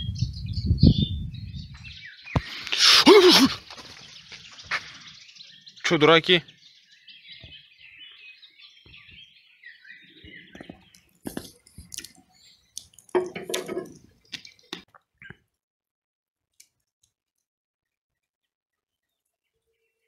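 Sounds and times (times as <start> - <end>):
birds chirping: 0.0 - 15.5
sharp knocks and clatters: 13.1 - 14.1.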